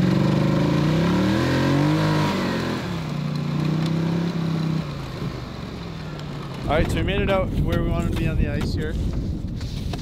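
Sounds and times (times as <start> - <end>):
quad bike engine revving: 0.0 - 7.2.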